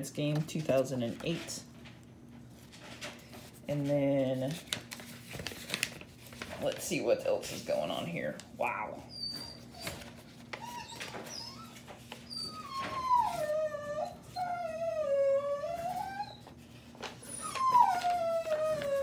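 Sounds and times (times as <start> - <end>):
dog whining and howling: 8.7 - 19.0.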